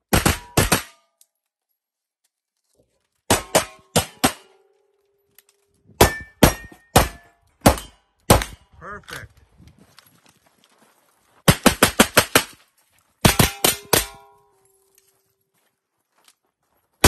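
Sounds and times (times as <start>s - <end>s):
pistol shots: 0.1s - 1.0s, 3.3s - 4.5s, 6.0s - 8.7s, 11.5s - 12.6s, 13.2s - 14.3s
steel target ringing: 6.0s - 8.1s, 13.3s - 14.6s.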